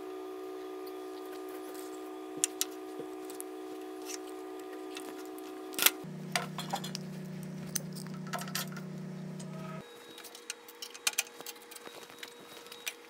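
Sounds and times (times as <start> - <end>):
steady hum of held tones: 0.0 - 13.0.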